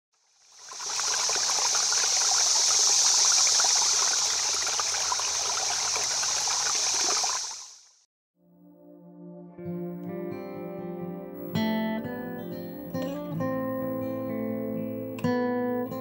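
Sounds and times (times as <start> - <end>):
stream water rushing: 0.3 - 8.0.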